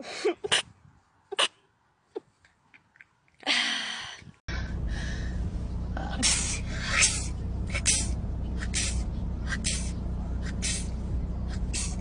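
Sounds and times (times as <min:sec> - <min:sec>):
car interior rumble: 0:04.5 - 0:12.0.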